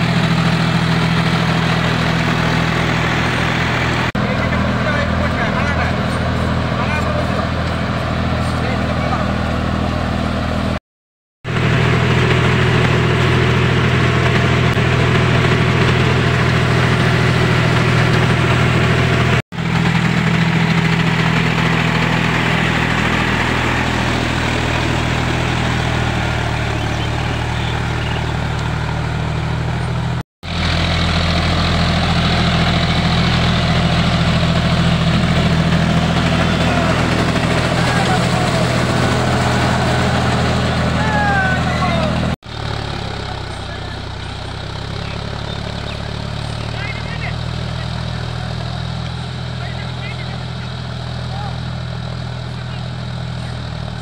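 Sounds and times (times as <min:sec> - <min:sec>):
tractor diesel engine under load: 0:00.0 - 0:10.8, 0:11.4 - 0:54.0.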